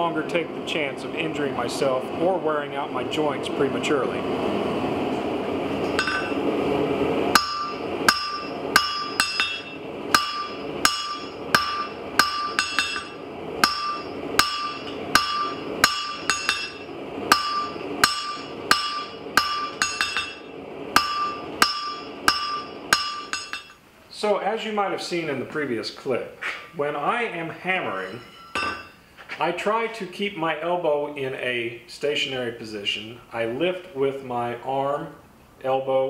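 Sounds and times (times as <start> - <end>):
hammer striking metal on anvil: 5.9 - 6.4, 7.3 - 23.8, 28.0 - 29.0.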